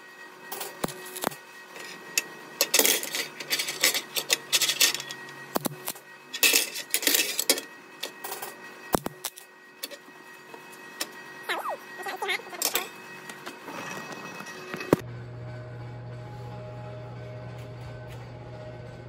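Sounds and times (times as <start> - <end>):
welding arc crackle: 0.7 - 6.4.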